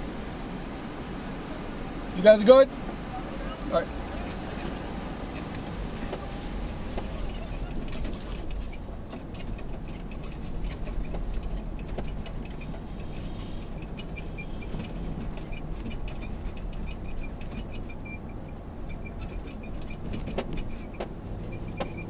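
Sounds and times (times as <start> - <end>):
vehicle rumbling: 0.0 - 22.0
sharp high-pitched ticks: 3.9 - 4.8, 5.4 - 20.0.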